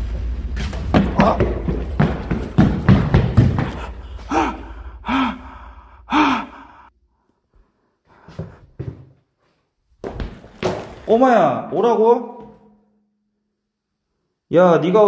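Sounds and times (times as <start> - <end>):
man gasping cries: 3.8 - 6.9.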